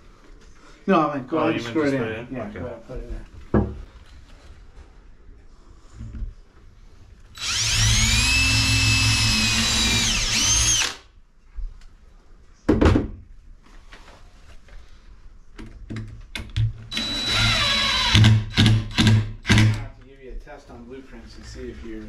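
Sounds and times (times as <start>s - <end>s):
knock: 3.5s - 3.8s, 12.7s - 13.2s
power drill driving a screw: 7.4s - 11.0s, 16.9s - 19.8s.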